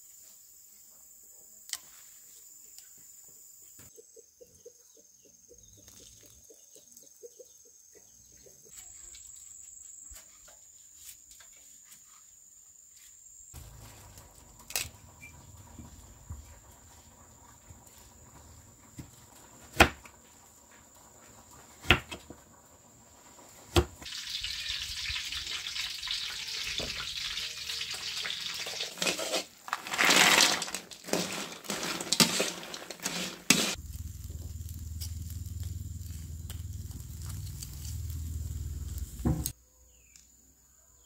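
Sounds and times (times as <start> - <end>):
food sizzling in hot oil: 13.6 - 29.8, 30.6 - 39.5
low rumble: 33.8 - 39.3.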